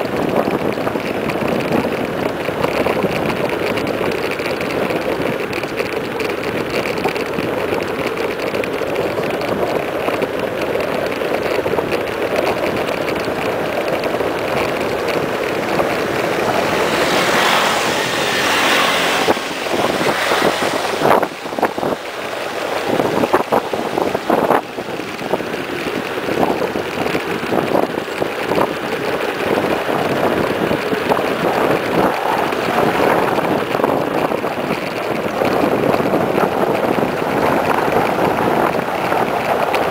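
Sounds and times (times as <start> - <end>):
bike tyre noise on asphalt: 0.0 - 39.9
wind rushing over microphone: 0.0 - 39.9
motorcycle passing: 0.9 - 39.9.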